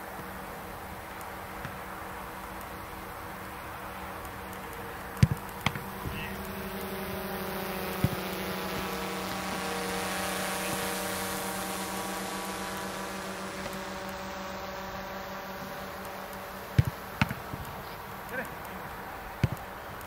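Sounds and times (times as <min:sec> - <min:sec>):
drone propellers humming: 0:00.0 - 0:20.0
football being struck: 0:05.2 - 0:06.3, 0:16.7 - 0:17.7.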